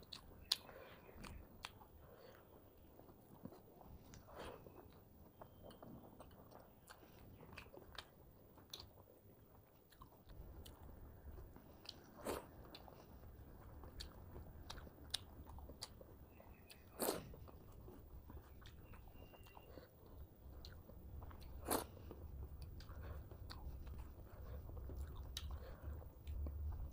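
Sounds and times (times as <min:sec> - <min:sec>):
person chewing and mouth sounds: 0:00.0 - 0:26.9
low hum: 0:17.4 - 0:26.9.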